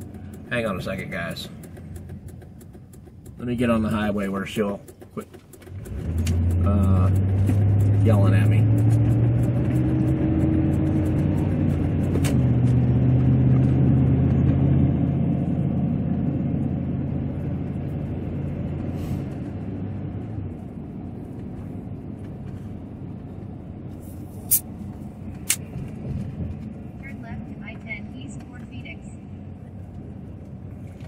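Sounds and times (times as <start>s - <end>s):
sharp clicks: 0.0s - 12.4s, 25.4s - 26.0s
pickup engine hum: 0.0s - 31.0s
tyre and road noise: 0.0s - 31.0s.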